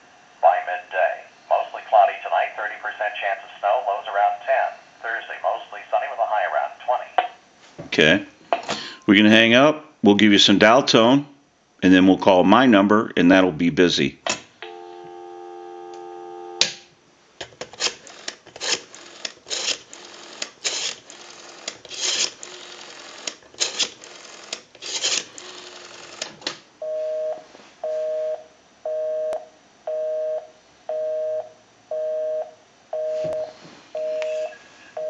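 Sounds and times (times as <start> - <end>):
telephone dial tone: 14.6 - 16.7, 18.1 - 26.3
busy signal beeping: 14.7 - 16.6, 26.8 - 34.6.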